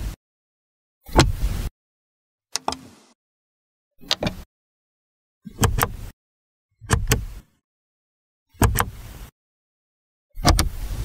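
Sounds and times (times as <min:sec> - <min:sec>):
car door latch clicks: 0:05.5 - 0:06.0, 0:06.8 - 0:07.4, 0:08.6 - 0:09.0, 0:10.4 - 0:10.8.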